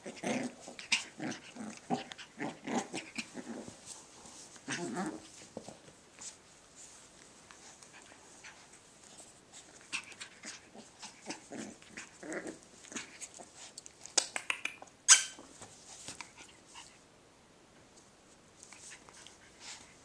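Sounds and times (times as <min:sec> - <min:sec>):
puppy vocal sounds: 0:00.0 - 0:03.9, 0:04.6 - 0:05.4, 0:07.7 - 0:15.4.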